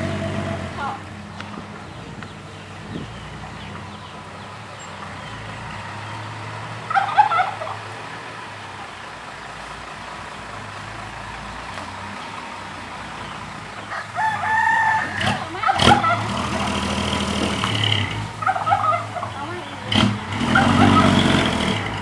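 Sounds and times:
diesel truck engine running: 0.0s - 22.0s
chicken call: 6.9s - 7.8s, 13.9s - 16.6s, 18.4s - 19.5s, 20.5s - 21.3s.

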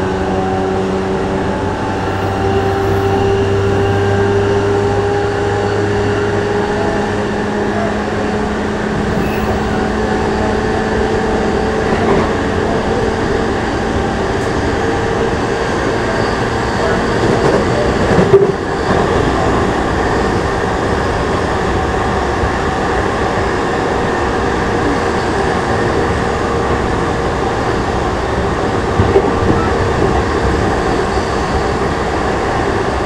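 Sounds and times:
train running noise: 0.0s - 33.0s
hum rising in pitch: 8.3s - 11.7s
low hum: 8.6s - 11.7s.

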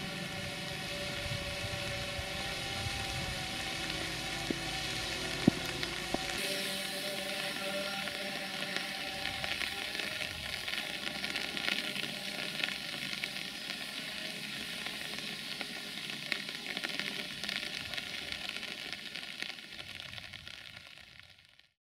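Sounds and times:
steady rain: 0.0s - 21.7s.

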